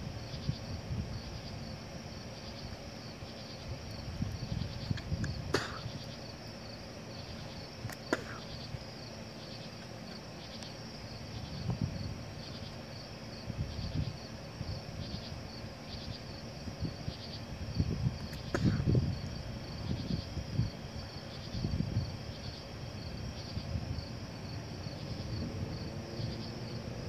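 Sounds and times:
crickets chirping: 0:00.0 - 0:27.0.

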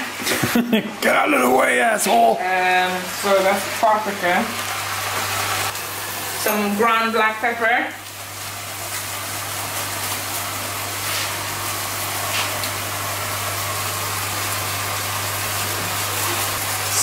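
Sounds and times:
meat sizzling in a frying pan: 0:02.4 - 0:17.0.

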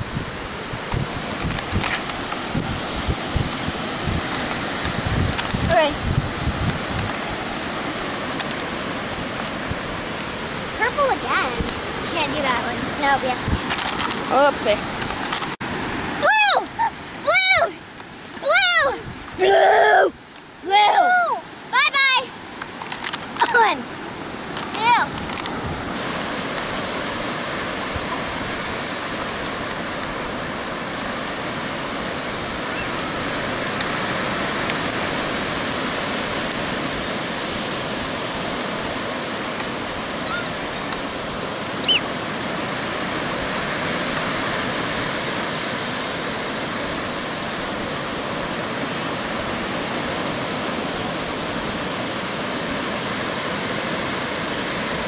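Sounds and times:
ocean waves breaking: 0:00.0 - 0:55.0
short high-pitched cry: 0:40.2 - 0:40.6.

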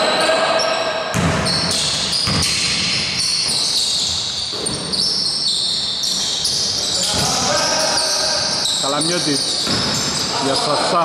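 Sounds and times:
sneaker squeaks on floor: 0:00.6 - 0:11.0
basketball bouncing on hardwood: 0:01.1 - 0:02.6, 0:09.6 - 0:10.0.

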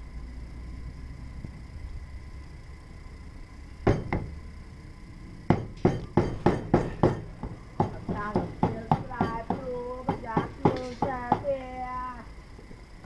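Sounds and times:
knife chopping on wooden board: 0:05.5 - 0:11.5.

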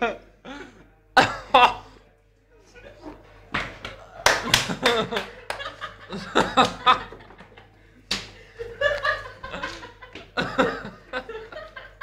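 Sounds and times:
men laughing: 0:01.2 - 0:02.0, 0:04.0 - 0:12.0.

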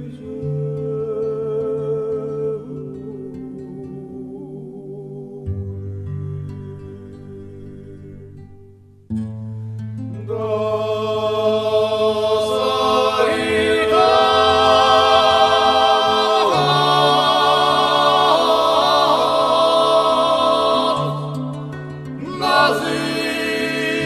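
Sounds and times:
choral singing: 0:00.0 - 0:05.5, 0:10.2 - 0:24.0
low drone: 0:12.2 - 0:22.0.

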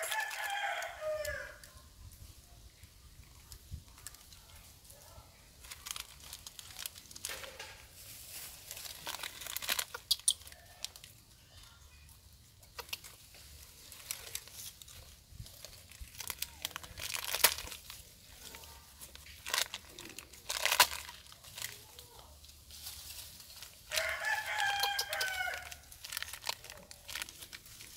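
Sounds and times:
noodle packet crinkling: 0:00.0 - 0:01.3, 0:05.6 - 0:11.2, 0:12.7 - 0:22.3, 0:23.4 - 0:27.9.

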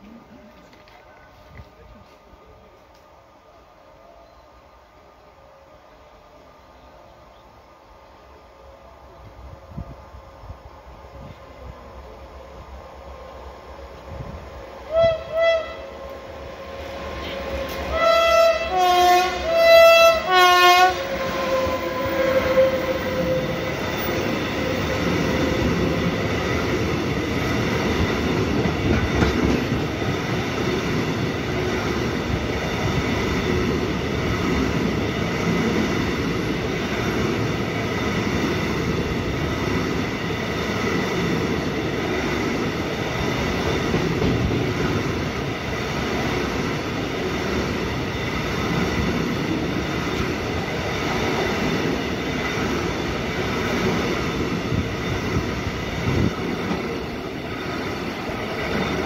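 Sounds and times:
freight train wheels rumbling: 0:00.0 - 0:59.0
locomotive horn two-note blasts: 0:14.9 - 0:16.2, 0:17.2 - 0:23.6.

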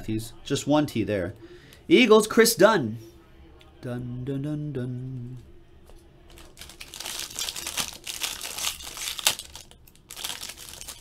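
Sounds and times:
foil wrapper crinkling: 0:06.3 - 0:11.0.

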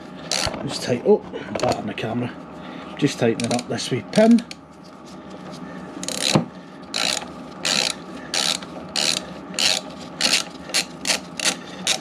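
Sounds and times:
socket ratchet clicking: 0:07.0 - 0:12.0.

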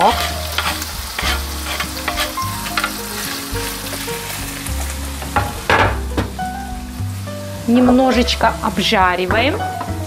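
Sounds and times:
wooden spatula scraping and clicking: 0:00.0 - 0:04.1
food sizzling in frying pan: 0:00.0 - 0:10.0.

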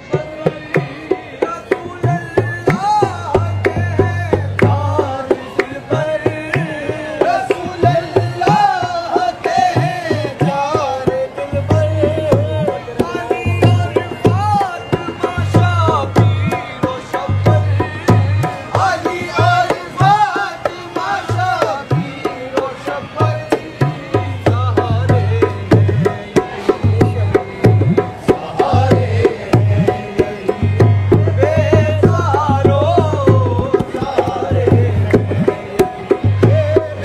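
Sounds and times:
harmonium: 0:00.0 - 0:37.0
man singing: 0:00.0 - 0:37.0
hand drum beat: 0:23.6 - 0:37.0.

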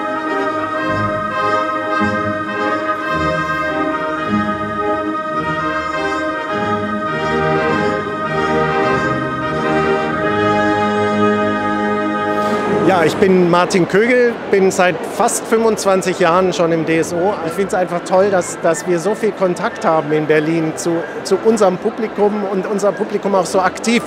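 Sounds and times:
trumpets and brass: 0:00.0 - 0:14.5
symphony orchestra playing chords: 0:00.0 - 0:24.0.

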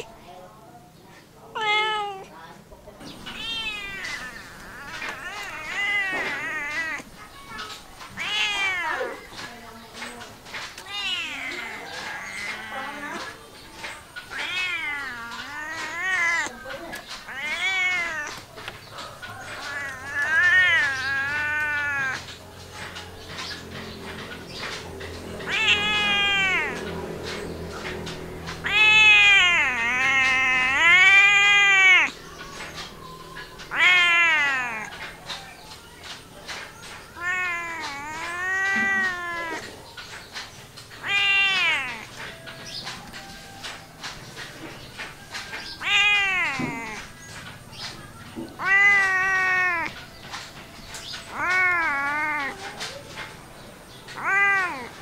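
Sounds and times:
cat meowing: 0:01.5 - 0:02.4, 0:03.2 - 0:09.4, 0:10.8 - 0:22.4, 0:25.4 - 0:35.4, 0:36.0 - 0:39.9, 0:40.9 - 0:42.3, 0:45.0 - 0:47.1, 0:48.4 - 0:53.3, 0:54.0 - 0:55.0.

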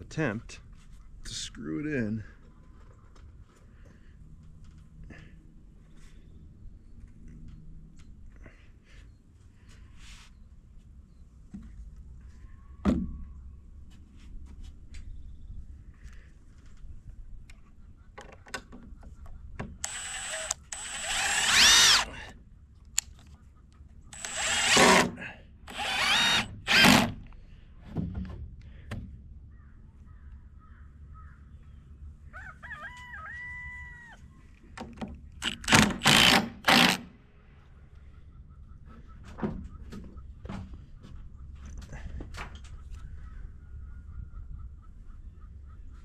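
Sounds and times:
cordless drill driving screws: 0:19.8 - 0:22.2, 0:24.1 - 0:27.2, 0:35.4 - 0:37.1
rooster crowing: 0:32.3 - 0:34.2.

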